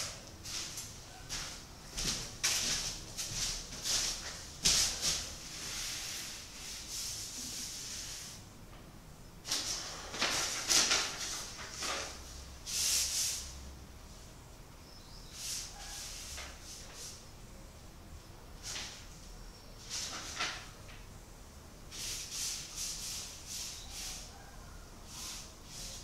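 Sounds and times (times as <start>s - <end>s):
paintbrush stroking canvas: 21.9s - 24.5s, 25.1s - 26.0s.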